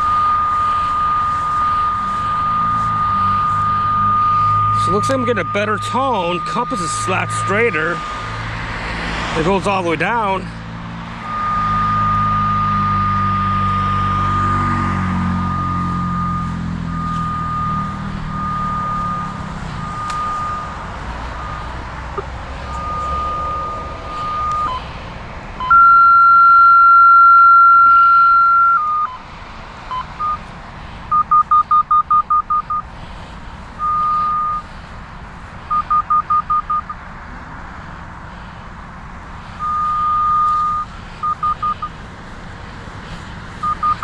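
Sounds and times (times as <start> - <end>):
locator receiver beeping: 11.3 - 14.2, 19.9 - 20.8, 22.7 - 24.8, 25.6 - 29.2, 31.1 - 32.8, 33.8 - 34.6, 39.6 - 41.9, 43.6 - 44.0.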